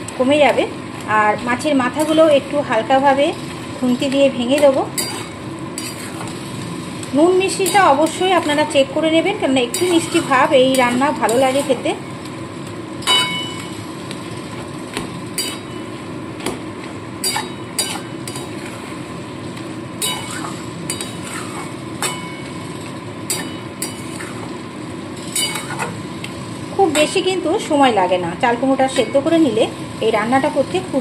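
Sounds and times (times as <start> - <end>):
cooking hiss: 0.0 - 31.0
metal spatula scraping pan: 4.6 - 6.4, 9.7 - 11.8, 20.0 - 24.5.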